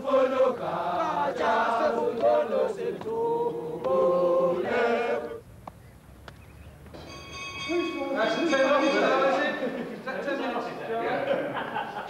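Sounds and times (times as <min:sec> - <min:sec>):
crowd singing a chant: 0:00.0 - 0:05.4.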